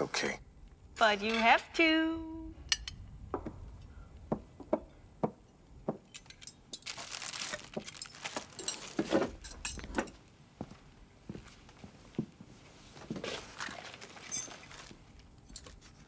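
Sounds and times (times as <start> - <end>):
glass and tableware clinking: 7.6 - 10.2.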